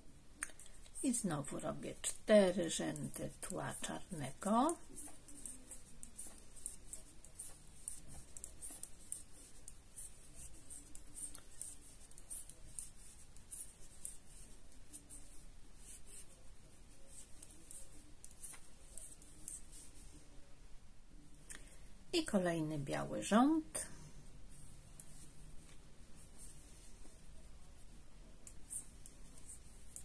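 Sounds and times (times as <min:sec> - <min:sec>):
knitting needles clicking: 0:00.3 - 0:16.2, 0:17.0 - 0:19.9
yarn rubbing: 0:00.6 - 0:20.3, 0:24.5 - 0:30.0.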